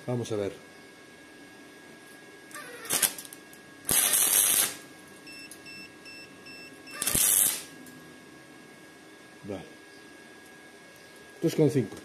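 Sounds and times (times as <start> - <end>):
welding arc crackling: 2.6 - 4.8, 6.9 - 7.7.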